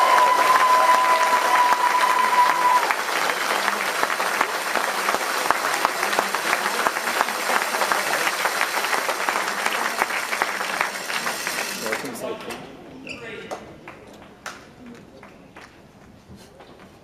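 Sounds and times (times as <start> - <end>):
crowd applauding: 0.0 - 12.4.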